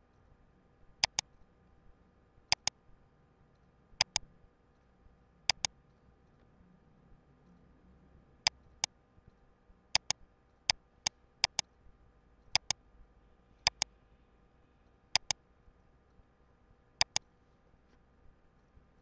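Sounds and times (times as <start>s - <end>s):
faint steady hum: 0.0s - 19.0s
mouse button clicking: 1.0s - 1.2s, 2.5s - 2.7s, 4.0s - 4.2s, 5.5s - 5.7s, 10.0s - 10.2s, 11.4s - 11.6s, 12.6s - 12.8s, 13.6s - 13.9s, 15.2s - 15.4s, 17.0s - 17.2s.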